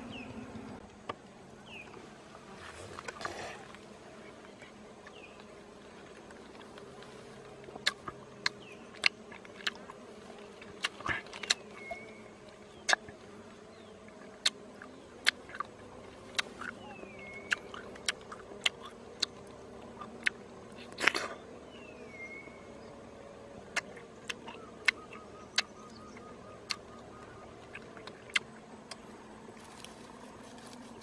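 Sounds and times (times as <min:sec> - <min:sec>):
insects buzzing: 0:00.0 - 0:31.0.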